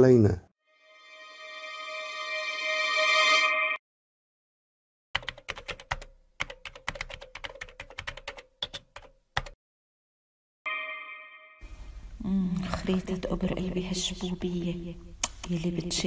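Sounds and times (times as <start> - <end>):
keyboard typing clicks: 5.2 - 9.6.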